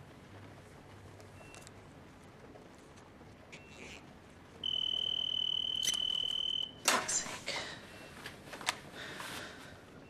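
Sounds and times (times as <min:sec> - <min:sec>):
high electronic beep: 0:04.6 - 0:06.8.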